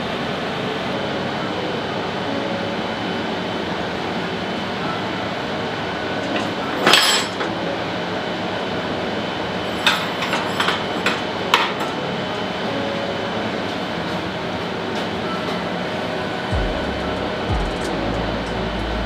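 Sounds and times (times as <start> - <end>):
steady background noise: 0.0 - 19.0
metal knocks and clinks: 6.4 - 7.4.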